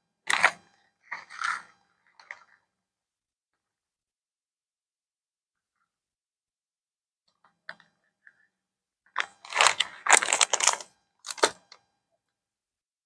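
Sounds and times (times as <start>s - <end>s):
plastic bag crinkling: 9.4s - 11.5s.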